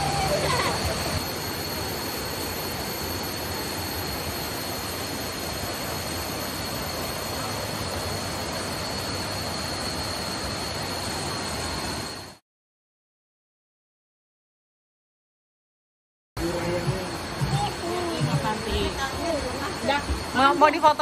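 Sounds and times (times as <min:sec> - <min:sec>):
thin high tone: 0:00.0 - 0:12.4.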